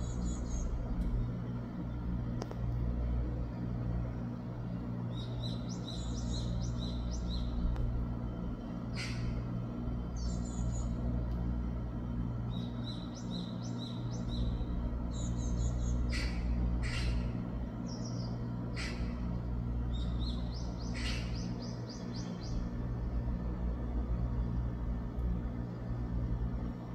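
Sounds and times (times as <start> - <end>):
steady low hum: 0.0 - 26.9
bird chirping: 5.1 - 7.6, 12.5 - 17.2, 19.9 - 22.7.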